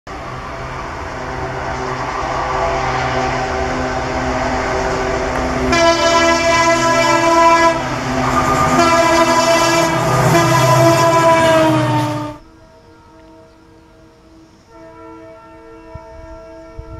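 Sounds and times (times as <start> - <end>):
locomotive engine droning: 0.1 - 16.9
train air horn blasts: 4.9 - 16.9.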